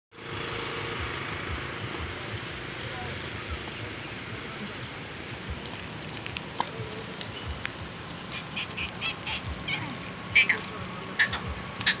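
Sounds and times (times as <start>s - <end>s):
high-pitched insect drone: 0.1s - 12.0s
faint clicks: 5.6s - 7.8s.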